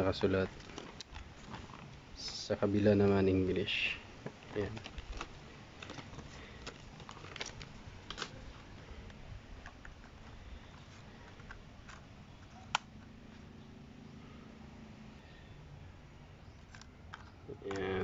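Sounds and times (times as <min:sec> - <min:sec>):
plastic drone clicks and rustles: 0:04.3 - 0:13.1.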